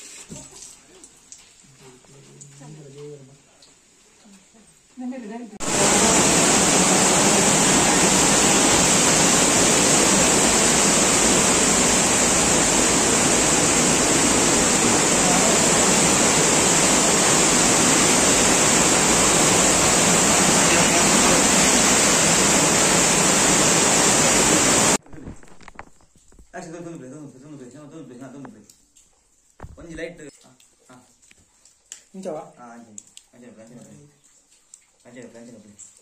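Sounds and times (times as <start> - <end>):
loud rushing hiss: 5.6 - 25.0.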